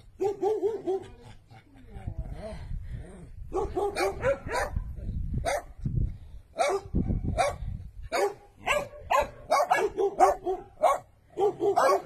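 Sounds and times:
dog barking: 0:00.2 - 0:01.1, 0:03.5 - 0:04.8, 0:05.4 - 0:05.7, 0:06.6 - 0:12.0.

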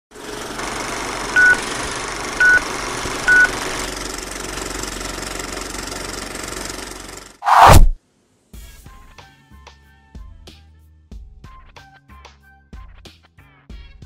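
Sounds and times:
film projector whir and hiss: 0:00.1 - 0:07.4
short high beeps: 0:01.4 - 0:01.6.

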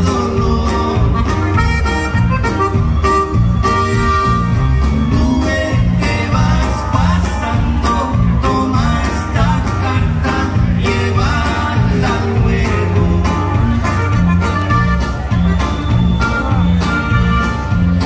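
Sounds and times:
bajo sexto guitar: 0:00.0 - 0:18.0
bass: 0:00.0 - 0:18.0
drums: 0:00.0 - 0:18.0
button accordion: 0:00.8 - 0:05.1, 0:12.0 - 0:18.0.

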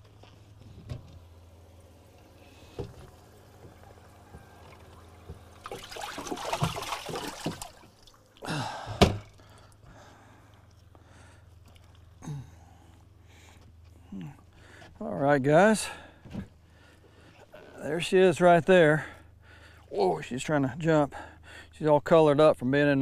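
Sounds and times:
water splashing and sloshing: 0:02.6 - 0:09.8.

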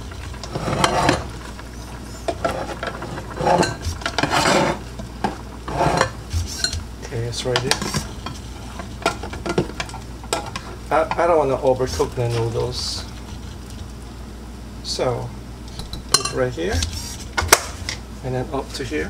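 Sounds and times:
boiling water: 0:00.0 - 0:19.0.

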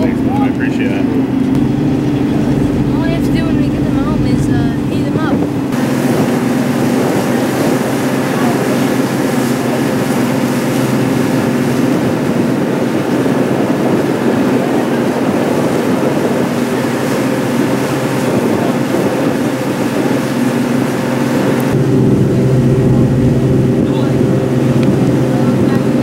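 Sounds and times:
boat engine droning: 0:00.0 - 0:26.0
water rushing past: 0:00.0 - 0:26.0
wind: 0:00.0 - 0:26.0.

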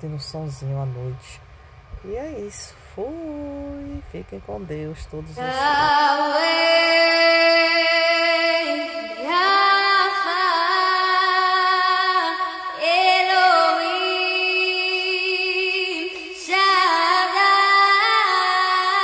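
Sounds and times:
woman singing long held notes: 0:05.4 - 0:19.0.

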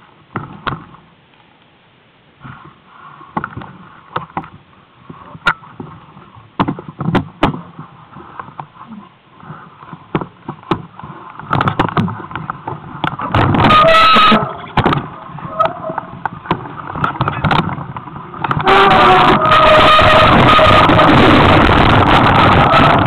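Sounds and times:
mountain bike rattling over rocks: 0:05.3 - 0:23.0.

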